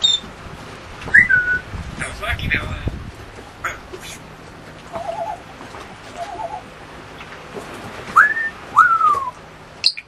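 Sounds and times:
parrot whistling: 0.0s - 0.2s, 1.1s - 1.6s, 4.9s - 5.4s, 6.2s - 6.6s, 8.2s - 10.0s
parrot warbling: 4.9s - 5.4s, 6.1s - 6.7s.

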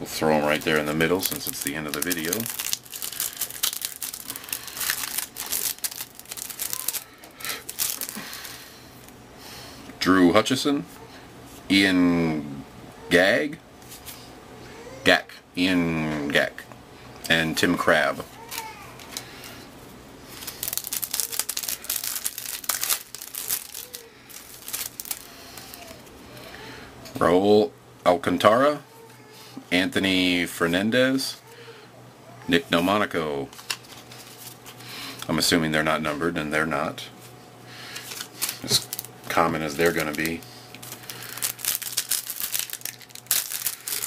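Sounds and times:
cards rustling and crinkling: 0.2s - 8.7s, 20.3s - 26.5s, 32.8s - 35.3s, 37.8s - 44.0s.

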